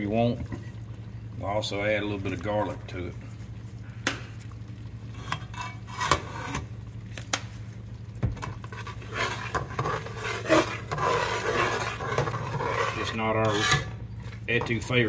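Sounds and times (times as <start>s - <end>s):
steady low hum: 0.0s - 15.0s
spatula stirring thick gravy: 5.0s - 6.8s, 8.5s - 15.0s.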